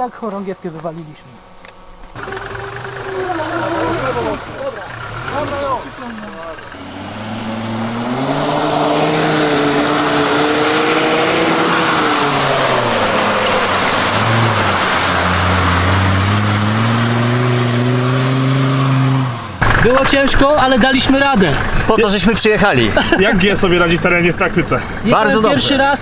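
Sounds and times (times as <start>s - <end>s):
diesel engine revving under load: 2.2s - 20.0s.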